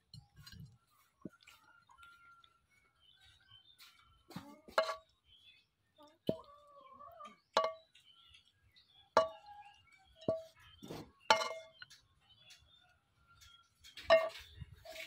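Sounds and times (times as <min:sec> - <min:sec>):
wok clinking against ceramic plate: 0:04.7 - 0:05.1, 0:07.5 - 0:08.0, 0:09.2 - 0:09.5, 0:11.3 - 0:12.1, 0:13.5 - 0:15.0.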